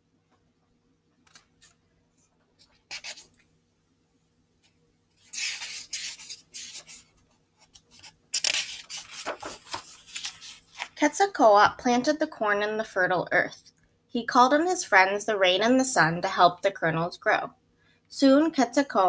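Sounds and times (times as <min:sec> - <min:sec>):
book pages rustling and turning: 0:01.2 - 0:03.4, 0:05.2 - 0:11.0.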